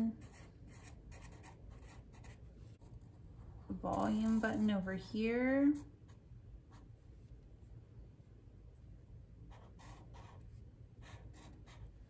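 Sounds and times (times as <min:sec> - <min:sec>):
marker scratching on paper: 0:00.1 - 0:03.0, 0:09.5 - 0:12.0.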